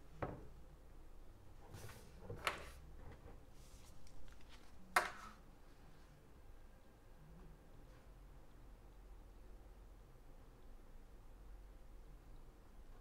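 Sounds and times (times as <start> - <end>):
paper sliding on table: 1.6 - 5.4.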